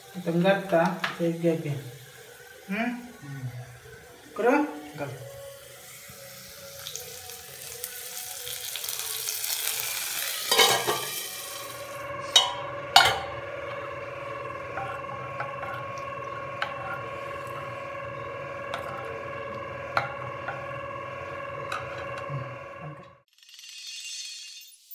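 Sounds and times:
hot oil sizzling: 0.0 - 23.2
steady humming tone: 0.0 - 23.3
spoon clinking: 10.5 - 11.2, 12.3 - 13.4
spoon stirring in pan: 10.5 - 11.2, 12.2 - 23.2.

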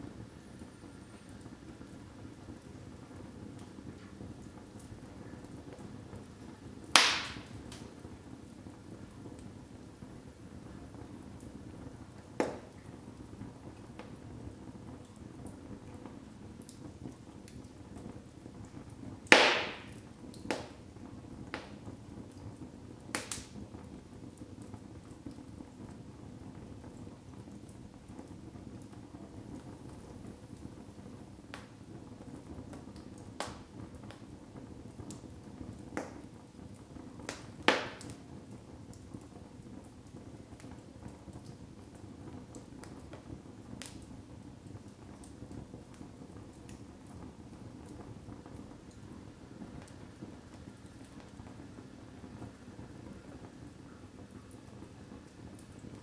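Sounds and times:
low rush of flame: 0.0 - 56.0
wood crackling and popping: 0.1 - 56.0
loud wood snaps: 7.0 - 7.8, 19.3 - 20.7, 23.2 - 23.5, 37.3 - 38.2.

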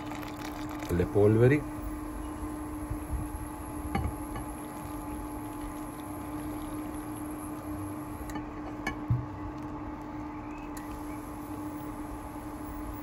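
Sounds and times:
water poured into bowl: 0.0 - 1.6, 4.3 - 7.7.

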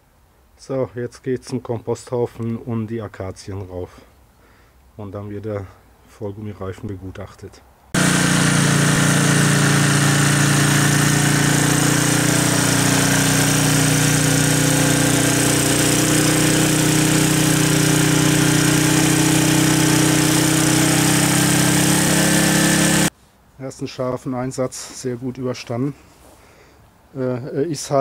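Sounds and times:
garden tractor engine running: 8.0 - 23.1.

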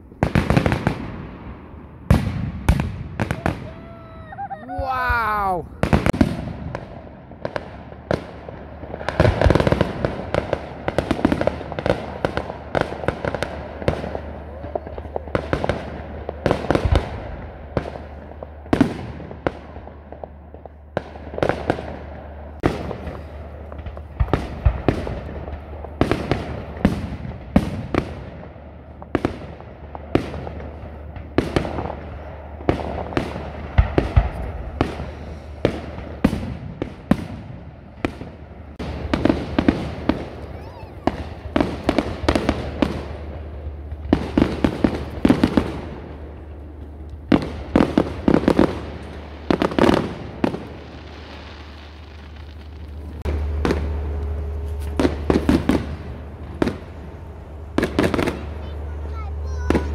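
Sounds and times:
fireworks bangs: 0.0 - 59.9
low hum: 37.5 - 49.5, 50.1 - 59.9.

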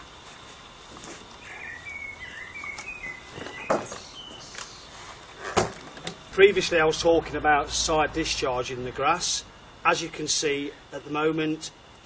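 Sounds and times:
bird chirping: 1.4 - 4.9.

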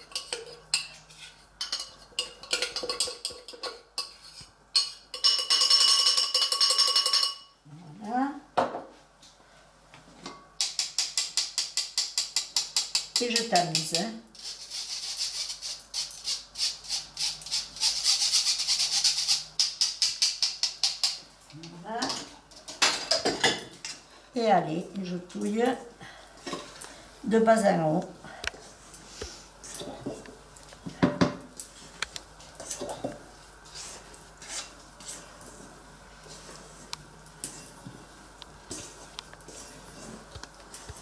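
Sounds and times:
spoon scraping through mesh sieve: 13.2 - 19.8, 33.7 - 35.7, 38.7 - 40.9
spatula scraping metal bowl: 33.7 - 35.6.

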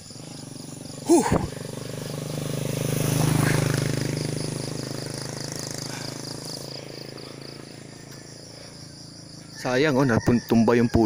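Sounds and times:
vehicle engine hum: 0.0 - 10.1
cricket chirping trill: 0.0 - 11.0.

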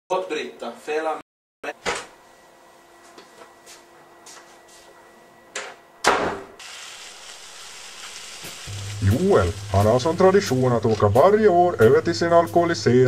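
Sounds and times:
loud thump: 6.0 - 6.6
steady hiss: 6.6 - 13.0.

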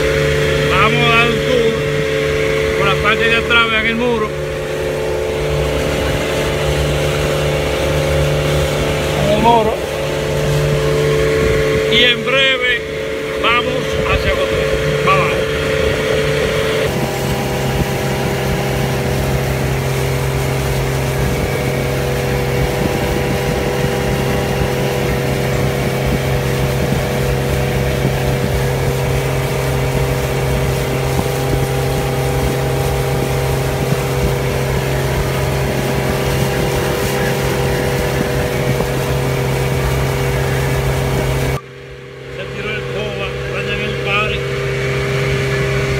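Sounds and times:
outboard motor running: 0.0 - 45.9.

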